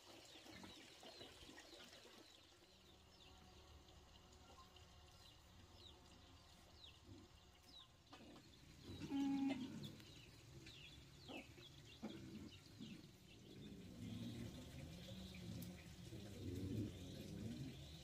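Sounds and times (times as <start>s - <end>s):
chickens clucking: 8.0s - 13.4s.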